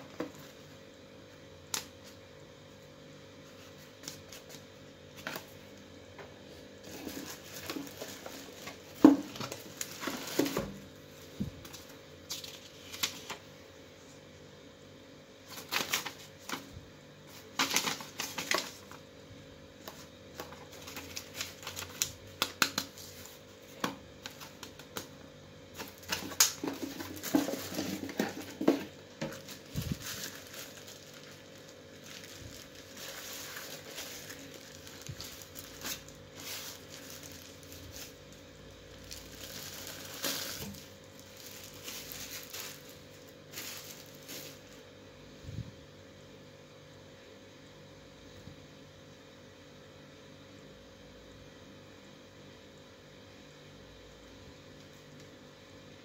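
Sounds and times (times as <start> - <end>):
faint steady hum: 0.0 - 56.0
paper and plastic bag rustling: 6.4 - 13.4, 15.4 - 19.0, 19.8 - 25.0, 25.7 - 44.9.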